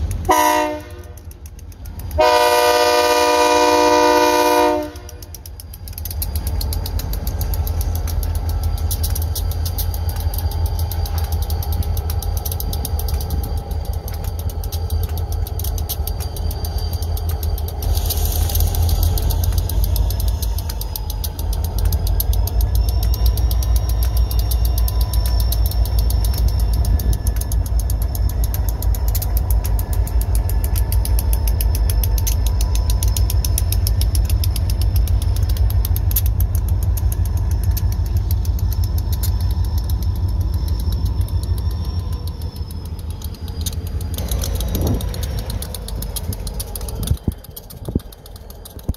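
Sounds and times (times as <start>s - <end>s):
diesel locomotives rumbling: 0.0s - 48.9s
faint high whine: 4.8s - 48.9s.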